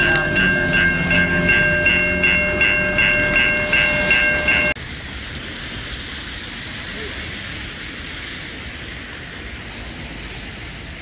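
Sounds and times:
level-crossing bell ringing: 0.0 - 4.8
diesel locomotive rumble: 0.0 - 11.0.

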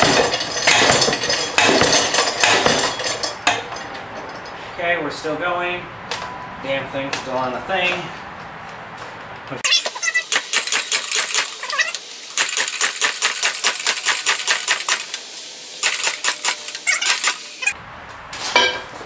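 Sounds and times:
tire changer clicking and clattering: 0.0 - 4.7.

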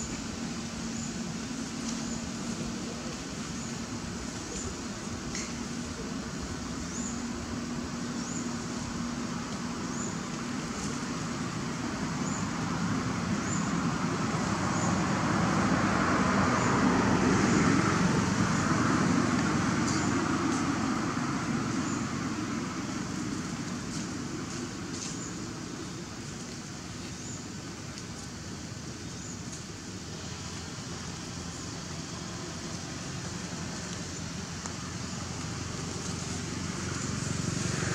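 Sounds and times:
vehicle passing by: 12.2 - 25.2, 30.2 - 37.9.

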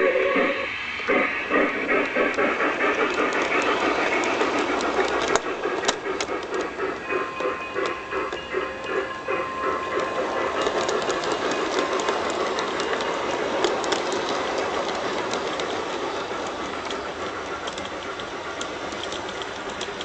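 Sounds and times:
model train wheels rumbling: 0.0 - 20.0
clicks at rail joints: 9.9 - 20.0.

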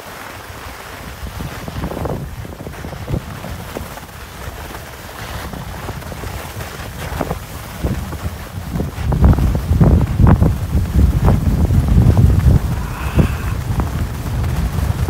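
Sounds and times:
skis scraping packed snow: 0.0 - 15.0
wind buffeting microphone: 0.4 - 15.0.

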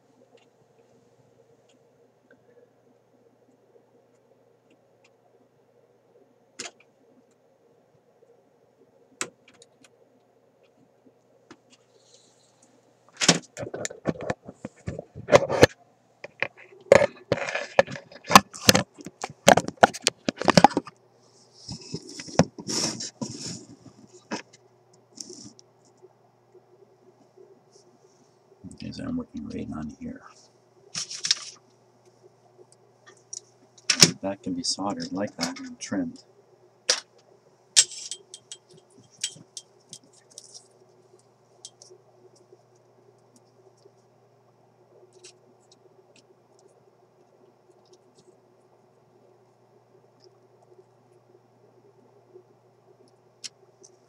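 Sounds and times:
faint steady hum: 0.0 - 54.0
scraping and rustling: 13.5 - 24.5
hand tools clicking and ticking: 37.8 - 40.4.

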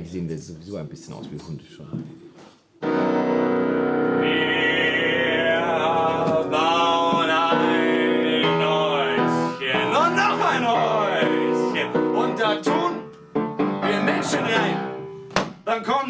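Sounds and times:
sustained instrumental chords: 2.8 - 15.3
man singing: 4.2 - 13.0, 13.8 - 14.8.

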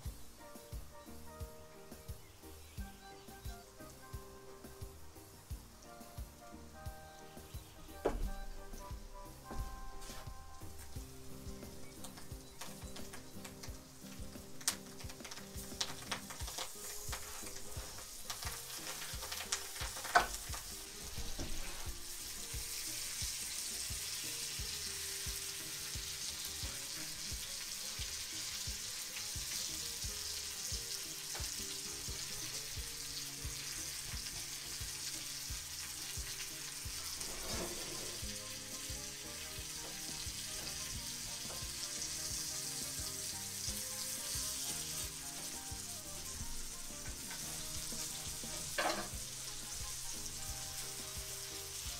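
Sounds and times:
fish fillets sizzling in a pan: 0.0 - 51.9
metal spatula scraping pan: 16.6 - 22.2, 36.9 - 38.4, 47.3 - 49.2.

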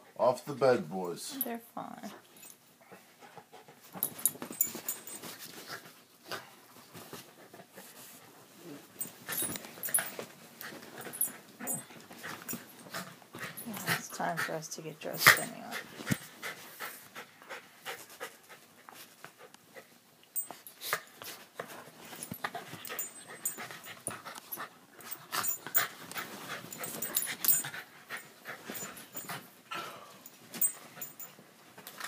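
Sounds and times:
dogs breathing hard: 9.0 - 29.6, 30.2 - 31.3.

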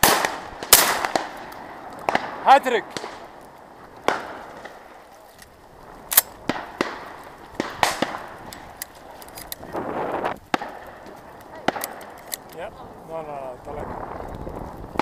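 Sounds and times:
shotgun shots: 0.0 - 1.4, 6.1 - 8.3, 11.6 - 12.1.

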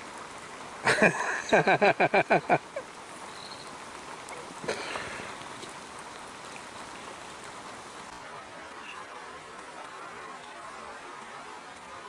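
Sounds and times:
steady rain falling: 0.0 - 12.0.

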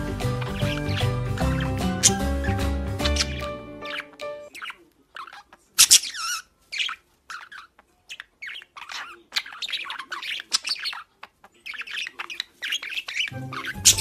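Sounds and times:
music: 0.0 - 4.6, 13.3 - 14.0
budgerigar chirping: 0.0 - 14.0.

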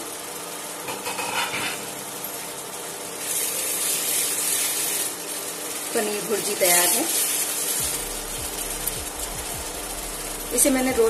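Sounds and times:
food sizzling in a pan: 0.0 - 11.0
spatula stirring: 3.2 - 10.9.

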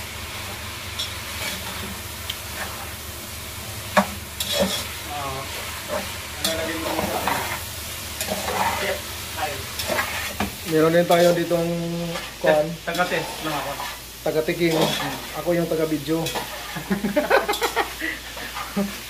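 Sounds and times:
meat sizzling in a pot: 0.0 - 19.0
metal spatula scraping a pot: 4.4 - 4.9, 5.9 - 7.6, 8.2 - 9.0, 9.8 - 10.5, 12.9 - 14.0, 14.6 - 15.3, 16.2 - 16.9.

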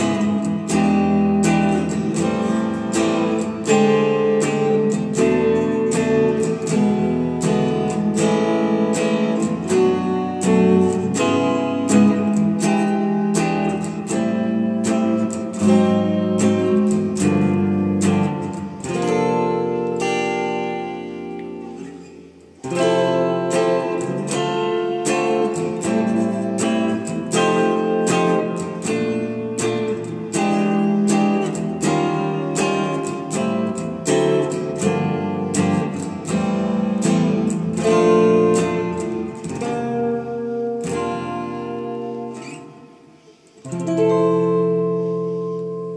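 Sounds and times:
solo electric guitar: 0.0 - 45.9.

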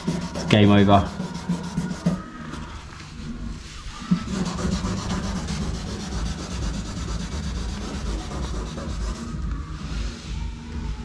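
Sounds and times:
hand sanding plastic: 0.0 - 2.3, 4.0 - 9.5.

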